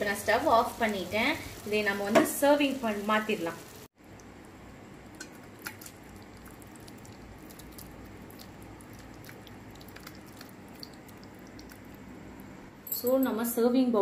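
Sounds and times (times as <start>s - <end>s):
wet squelching: 5.2s - 12.0s.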